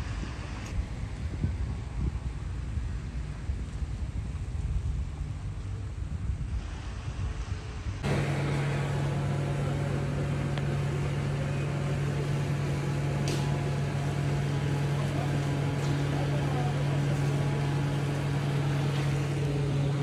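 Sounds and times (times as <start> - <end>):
wind buffeting microphone: 0.0 - 20.0
motor running steadily: 8.0 - 20.0.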